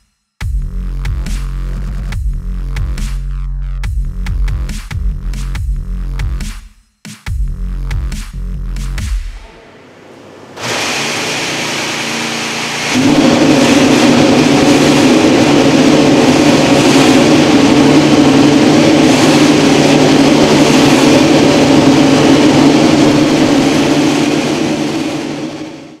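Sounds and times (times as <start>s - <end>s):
racing engine running loud: 9.3s - 26.0s
rushing noise: 9.4s - 26.0s.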